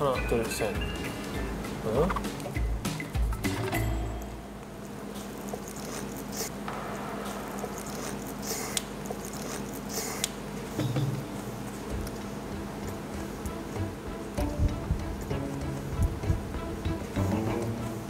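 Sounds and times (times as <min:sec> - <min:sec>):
low steady hum: 0:00.0 - 0:18.0
biting and chewing burger: 0:05.2 - 0:06.5, 0:07.6 - 0:10.4.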